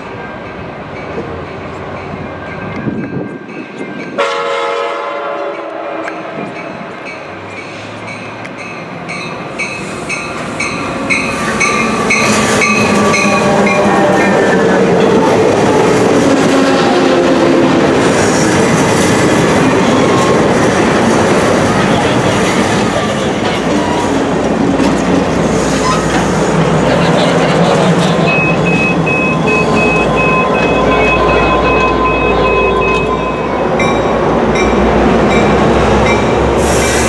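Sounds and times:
locomotive bell ringing: 0.0 - 4.8, 5.5 - 15.3, 28.1 - 36.5
train cars rumbling and clattering: 0.0 - 37.0.

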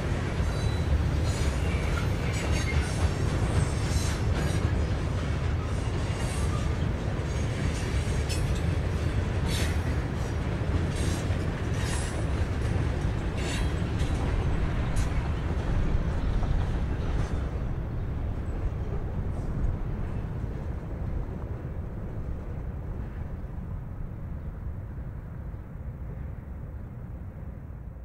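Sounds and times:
freight train rumble: 0.0 - 28.0
train wheel clicks and squeaks: 0.2 - 17.6.

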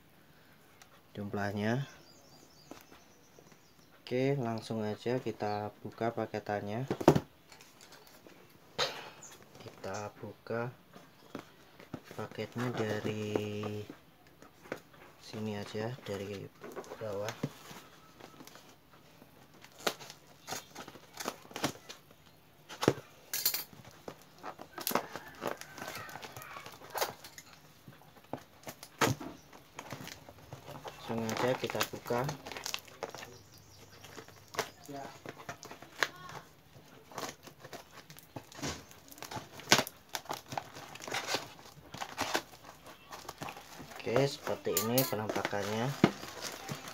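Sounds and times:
plastic wrapping crinkling: 14.6 - 46.9.

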